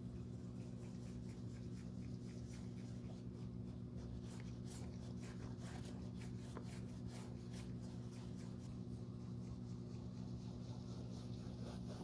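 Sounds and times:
steady low hum: 0.0s - 12.0s
pad scrubbing leather: 4.8s - 12.0s.

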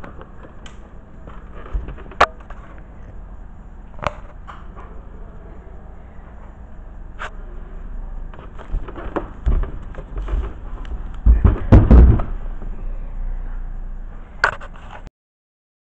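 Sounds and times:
knocks and dull thuds: 8.7s - 12.4s.

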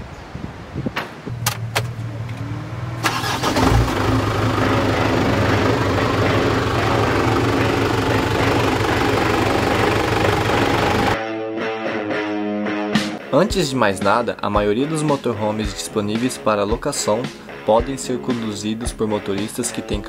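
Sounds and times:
low hum: 1.3s - 11.2s
engine starting and running: 1.4s - 11.2s.

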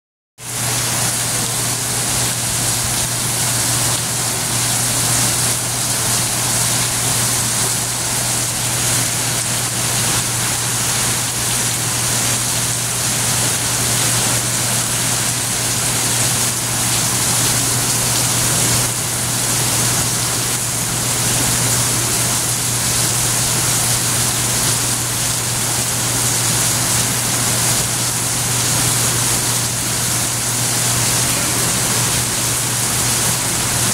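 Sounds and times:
heavy rain pouring: 0.4s - 33.9s.

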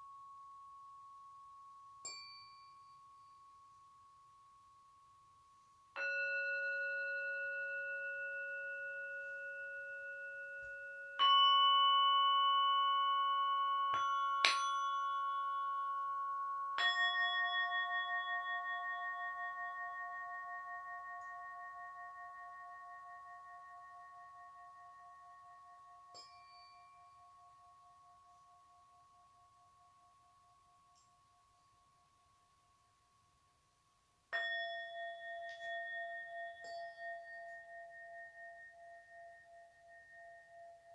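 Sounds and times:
tuning forks ringing: 2.0s - 3.6s, 5.9s - 29.9s, 34.4s - 40.9s.

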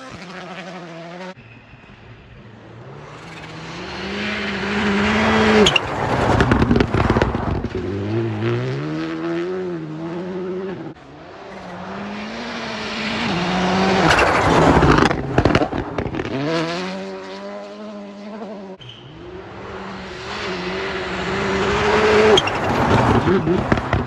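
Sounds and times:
rally car engines revving: 0.0s - 24.0s.

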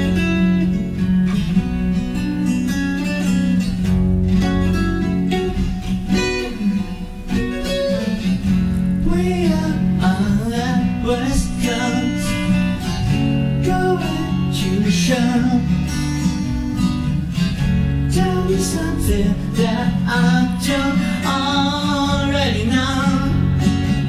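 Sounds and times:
acoustic guitar: 0.0s - 24.0s
man singing: 6.2s - 8.4s, 9.0s - 16.2s, 18.1s - 24.0s.

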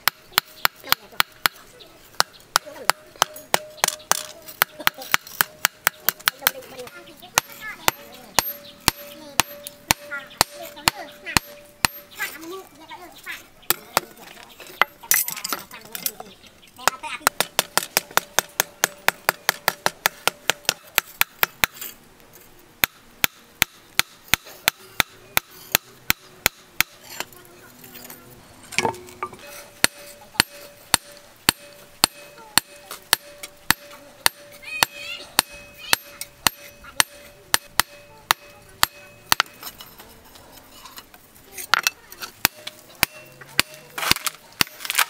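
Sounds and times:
hammer beating steel on anvil: 2.2s - 12.3s, 28.8s - 39.8s, 41.7s - 44.8s.

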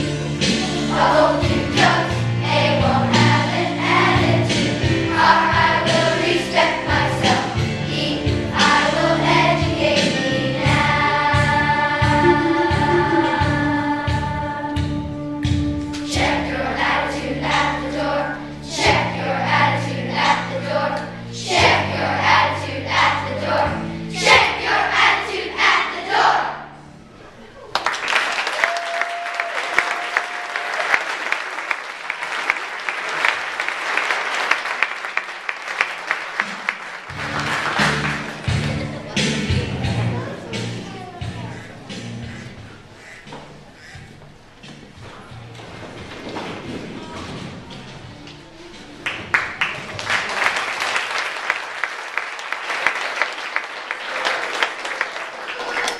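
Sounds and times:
song ending: 0.0s - 17.8s, 37.1s - 40.6s
low music notes: 0.0s - 27.3s
steady high tone: 12.0s - 14.7s
audience applause: 27.6s - 39.0s, 49.0s - 55.9s.

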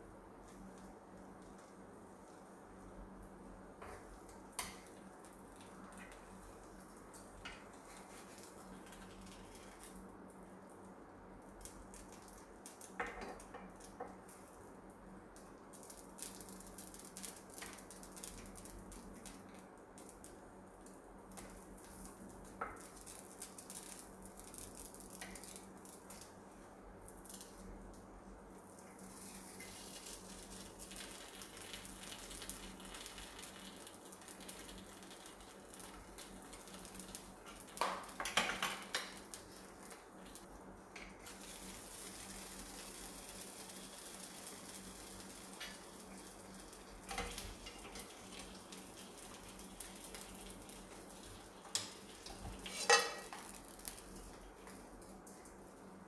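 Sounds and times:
faint frying sizzle: 0.0s - 56.0s
wooden spatula scraping pan: 52.5s - 53.4s
utensils clattering on pan: 52.6s - 53.5s.

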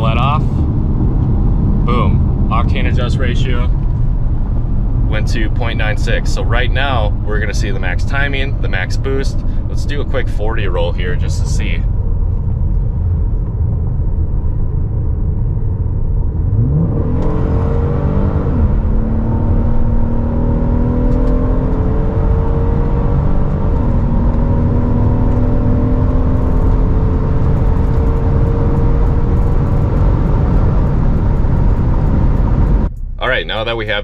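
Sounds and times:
car engine at full throttle: 0.0s - 34.0s
road and wind noise: 0.0s - 34.0s.

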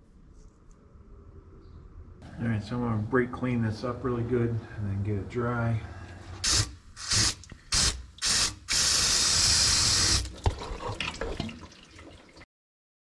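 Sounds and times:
aerosol spray bursts: 6.4s - 10.3s.

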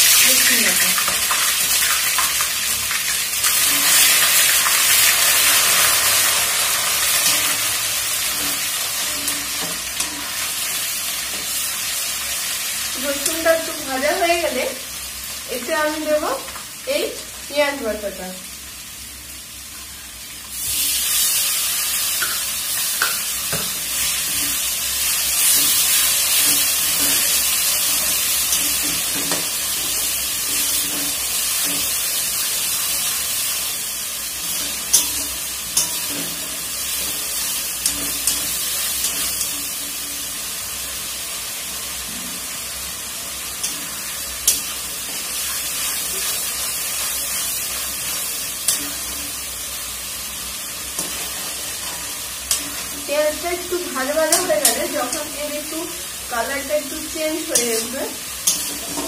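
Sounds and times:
paste sizzling in hot oil: 0.0s - 59.0s
metal spatula clicking on pan: 57.6s - 58.7s.

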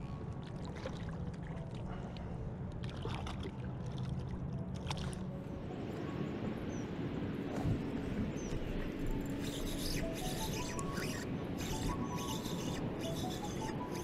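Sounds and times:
water sloshing and splashing: 0.0s - 5.5s.

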